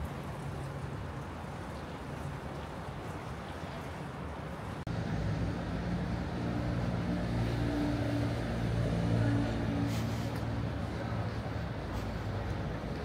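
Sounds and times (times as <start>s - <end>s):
city street traffic: 0.0s - 13.0s
vehicle engine low hum: 4.9s - 13.0s.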